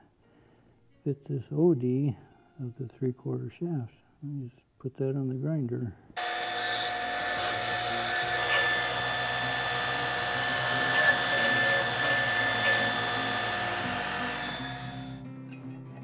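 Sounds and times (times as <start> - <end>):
belt grinder whining: 6.2 - 15.2
steel grinding against belt: 6.2 - 15.2
guitar music: 10.4 - 16.0.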